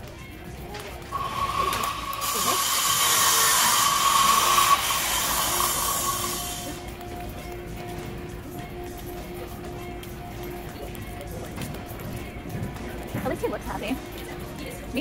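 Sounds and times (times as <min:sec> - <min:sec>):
high whine: 0:01.0 - 0:11.6
loud steady hiss: 0:01.1 - 0:07.0.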